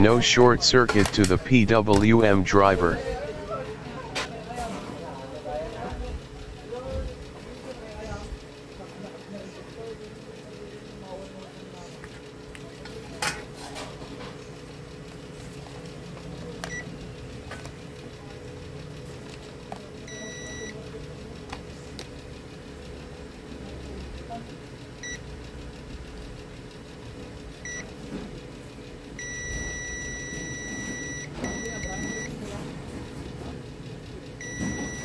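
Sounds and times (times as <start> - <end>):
multimeter beeps: 16.6 - 16.9, 20.0 - 20.8, 25.0 - 25.2, 27.6 - 27.9, 29.2 - 32.4, 34.4 - 35.0.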